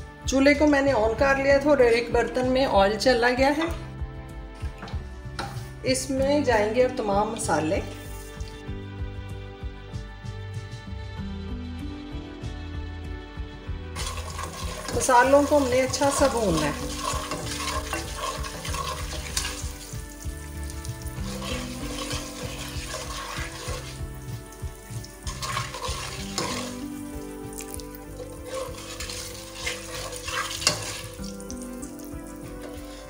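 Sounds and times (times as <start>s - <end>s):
soft background music: 0.0s - 33.0s
spices sizzling in oil: 5.3s - 6.1s, 14.0s - 33.0s
spatula scraping pot: 14.0s - 20.2s, 21.1s - 24.4s, 25.2s - 31.5s, 32.6s - 33.0s.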